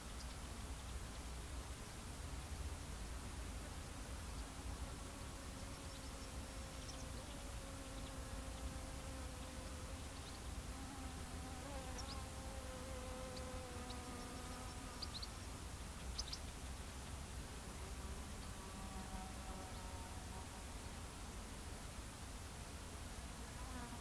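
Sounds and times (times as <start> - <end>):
flying insect buzzing: 4.8 - 15.4
faint bird chirps: 11.8 - 12.3, 13.2 - 17.2.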